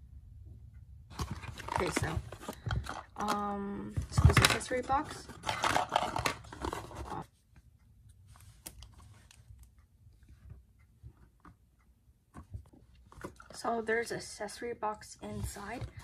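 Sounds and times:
paper packaging rustling and scraping: 1.1 - 3.1, 4.1 - 7.2
faint clicks and taps: 6.5 - 13.7.

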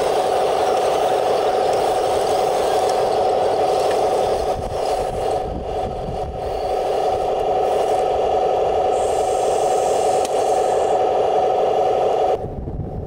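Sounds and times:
rc tanks mechanical drone: 0.0 - 13.0
wind rumbling on microphone: 1.6 - 9.7, 12.4 - 13.0.

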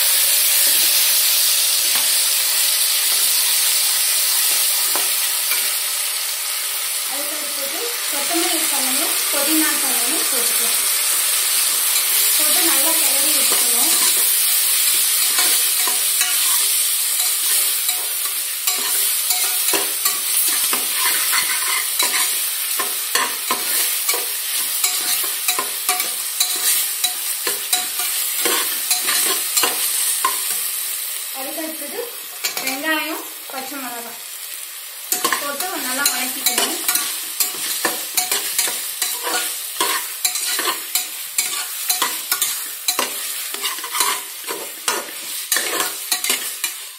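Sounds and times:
leaves sizzling in hot oil: 0.0 - 46.9
metal spatula scraping pot: 18.6 - 30.5, 35.1 - 46.8.

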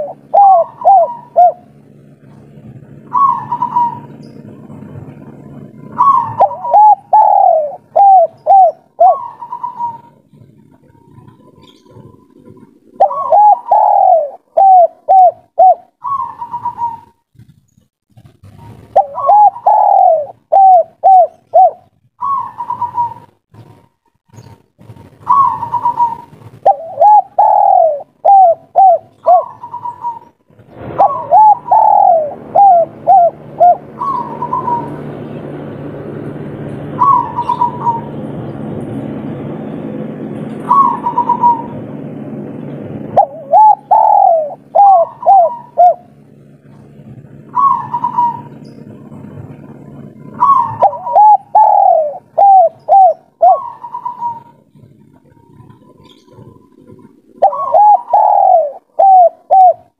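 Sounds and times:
dove cooing: 0.0 - 17.6, 18.2 - 59.9
low rumble: 0.0 - 22.4, 23.1 - 59.9.

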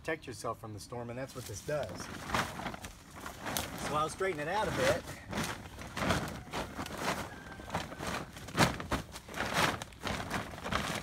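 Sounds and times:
tarp rustling and crinkling: 1.2 - 11.0.

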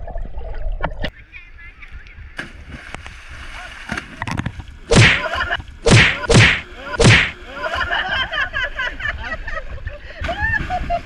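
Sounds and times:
choppy water: 0.0 - 11.0
people splashing into water: 2.4 - 8.1
water slapping microphone: 2.4 - 8.2.

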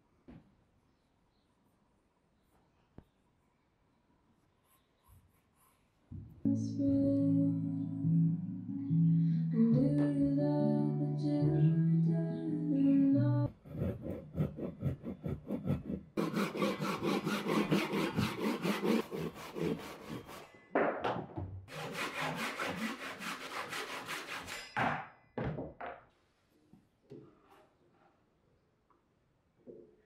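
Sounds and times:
handsaw cutting wood: 13.5 - 20.5, 21.7 - 24.7.

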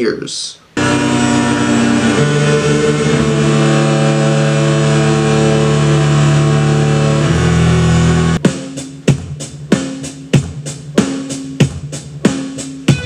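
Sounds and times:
loud sustained droning chord: 0.8 - 8.4.

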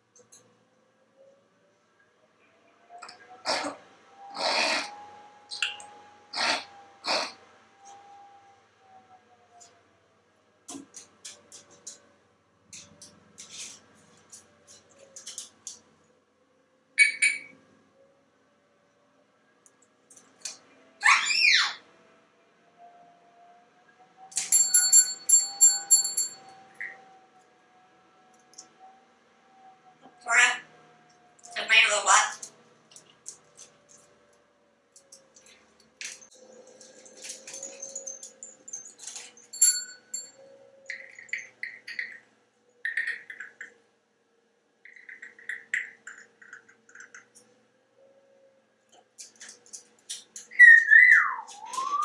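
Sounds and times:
bright bell-like rings: 24.4 - 26.6, 37.5 - 40.5.

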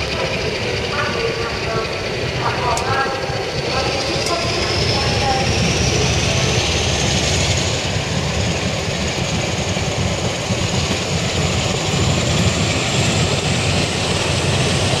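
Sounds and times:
train rumbling inside carriage: 0.0 - 15.0.

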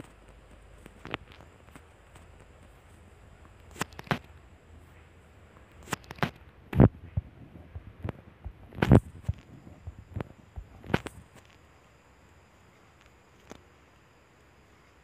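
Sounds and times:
sharp clicks: 0.0 - 4.5, 5.5 - 11.6
faint steady hum: 0.0 - 15.0.

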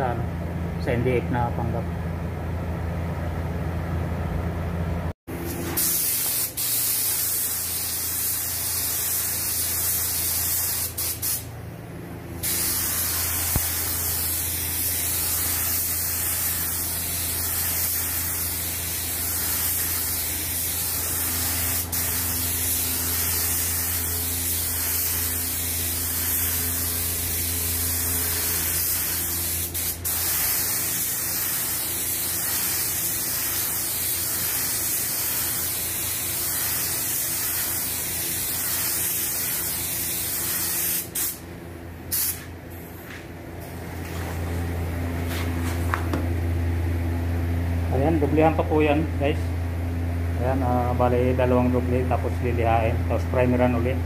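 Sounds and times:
steady low hum: 0.0 - 54.0
spray gun hissing: 5.5 - 11.5, 12.4 - 41.4, 42.1 - 42.5.

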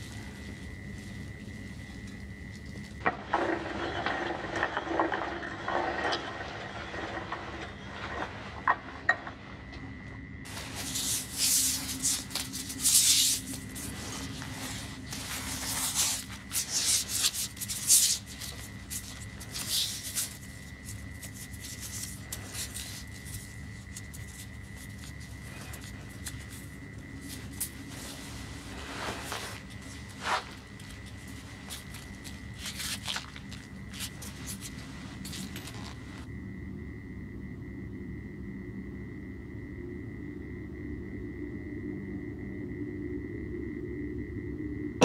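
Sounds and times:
strap and fabric rustling: 0.0 - 9.5, 10.5 - 36.3
straps and buckles rubbing and clicking: 10.5 - 36.3.

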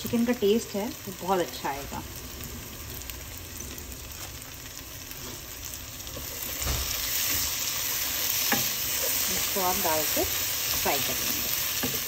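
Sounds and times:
onions sizzling in oil: 0.0 - 12.0
wooden spatula scraping pot: 6.2 - 12.0.

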